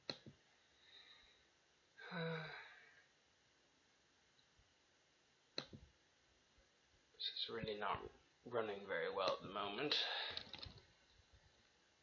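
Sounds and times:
man sighing: 2.0s - 3.0s
click: 5.6s - 5.8s.

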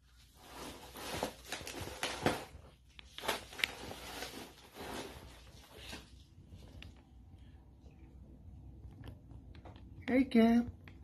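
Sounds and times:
plastic bag and envelope crinkling: 0.0s - 7.0s.

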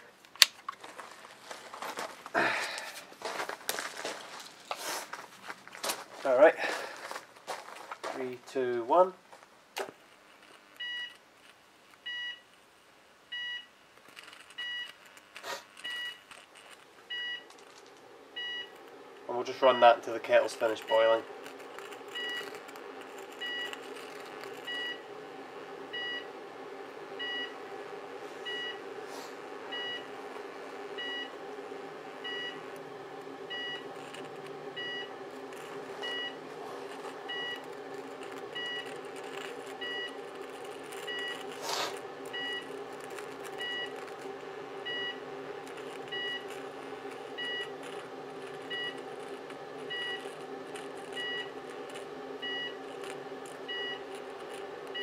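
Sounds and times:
electrical arcing and burning: 0.0s - 55.0s
transformers humming: 14.4s - 55.0s.

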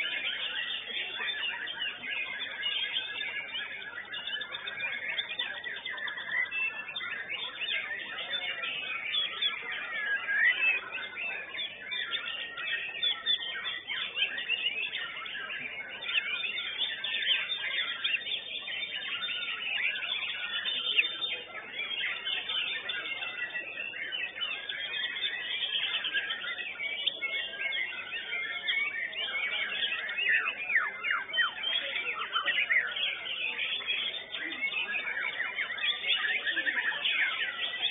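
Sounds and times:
songbird whistling and chattering: 0.0s - 37.9s.

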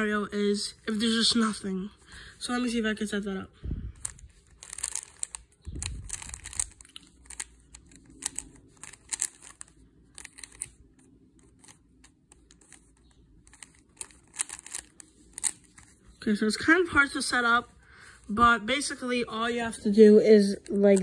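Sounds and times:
puzzle cube clicking: 4.0s - 15.9s.

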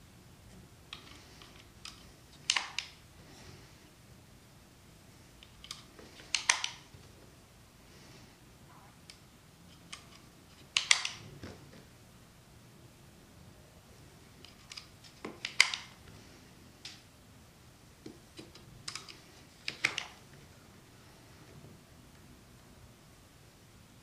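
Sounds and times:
plastic toy gun clicks: 10.7s - 11.2s.

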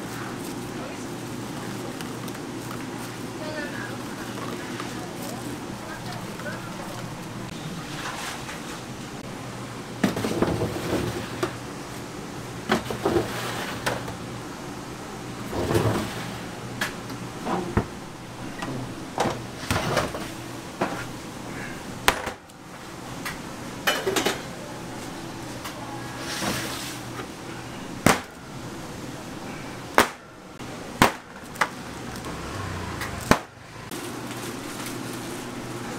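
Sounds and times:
low kitchen hum: 0.0s - 35.9s
metal baking trays clanking: 23.8s - 24.5s.

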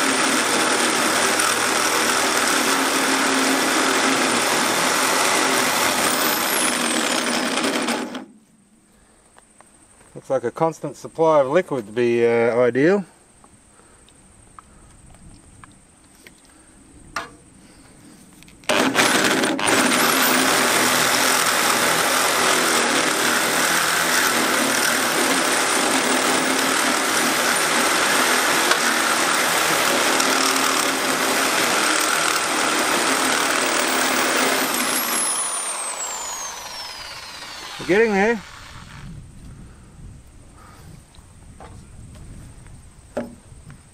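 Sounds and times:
electric drill cutting steel: 0.0s - 8.3s, 18.7s - 39.1s.

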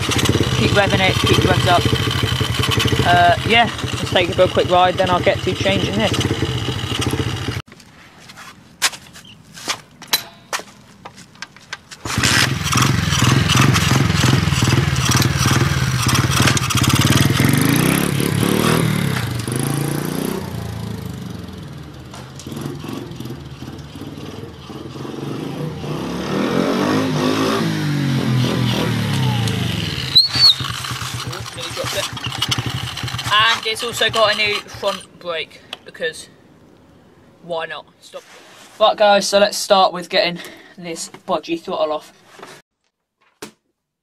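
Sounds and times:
pit bike engine revving: 0.0s - 7.6s, 12.0s - 35.1s.

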